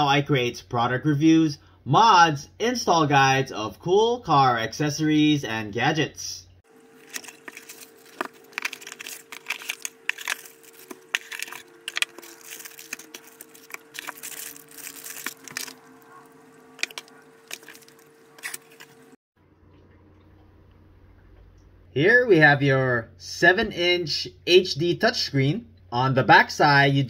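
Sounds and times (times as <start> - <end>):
faint steady hum: 0.1 - 27.0
plastic bags crinkling: 6.7 - 19.2.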